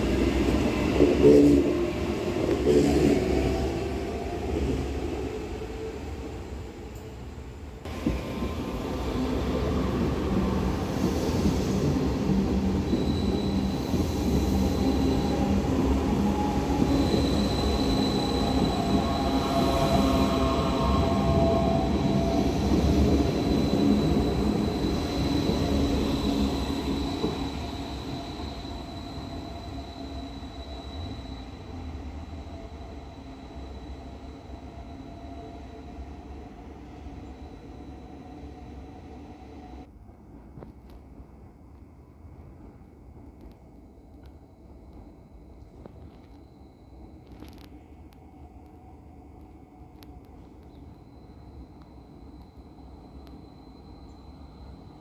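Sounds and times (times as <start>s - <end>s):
train wheels rumbling on rail: 0.0s - 55.0s
high-pitched squeal: 7.9s - 39.8s.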